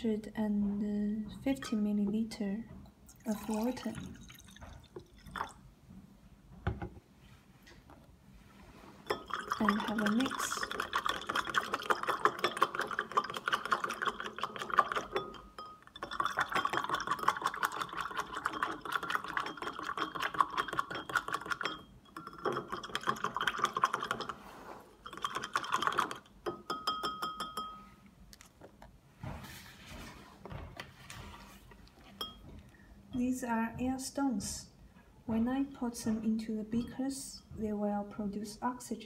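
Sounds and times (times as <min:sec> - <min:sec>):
stirring rod clinking in glass beaker: 0:09.0 - 0:24.4, 0:25.0 - 0:27.9, 0:32.1 - 0:32.5.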